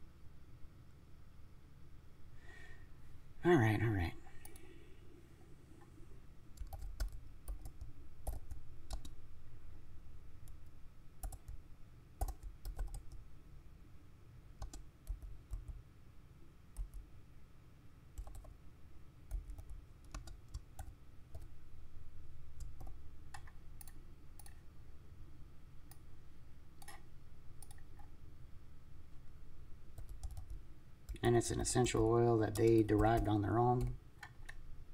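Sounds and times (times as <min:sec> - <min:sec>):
computer keyboard typing: 0:06.6 - 0:09.2, 0:10.5 - 0:11.6, 0:12.2 - 0:13.2, 0:14.6 - 0:15.8, 0:16.8 - 0:17.1, 0:18.2 - 0:18.6, 0:19.3 - 0:21.6, 0:22.6 - 0:24.6, 0:26.8 - 0:27.0, 0:27.6 - 0:28.1, 0:30.0 - 0:31.3, 0:31.9 - 0:34.6.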